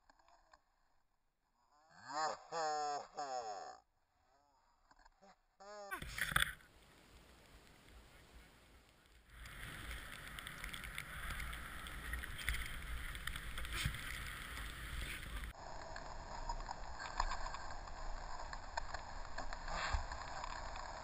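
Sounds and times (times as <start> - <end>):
snowboard scraping over snow: 9.4 - 21.0.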